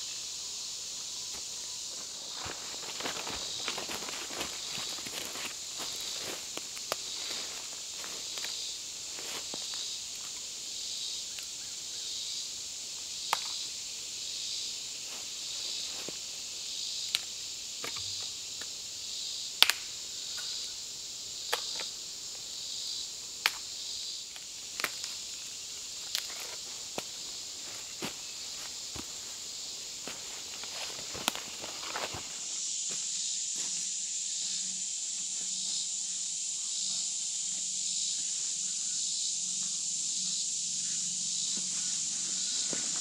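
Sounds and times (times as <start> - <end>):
high-pitched insect chorus: 0.0 - 43.0
dry wood snapping: 19.6 - 20.5, 24.8 - 25.2.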